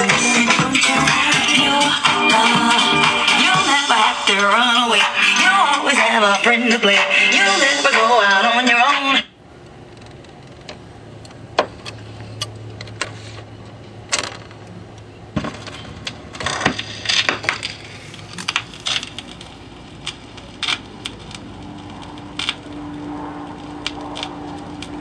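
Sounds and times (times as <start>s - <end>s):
low steady hum: 0.0s - 25.0s
record playback: 0.0s - 25.0s.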